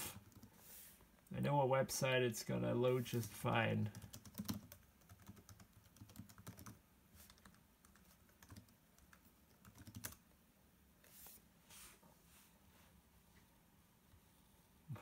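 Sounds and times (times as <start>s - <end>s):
laptop keyboard typing: 3.9s - 10.2s.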